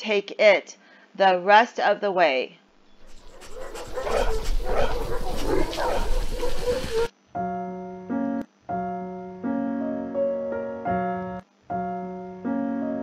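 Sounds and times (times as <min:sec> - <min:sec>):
keyboard chords: 0:07.4 - 0:13.0.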